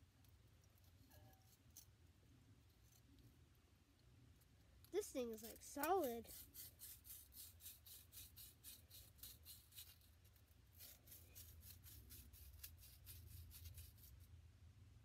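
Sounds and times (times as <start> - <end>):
hand scraping sand ball: 5.0 - 14.2.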